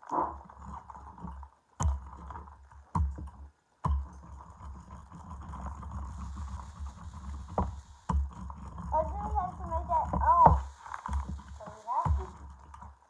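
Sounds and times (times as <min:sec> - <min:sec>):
plastic bag rustling: 0:08.9 - 0:13.0.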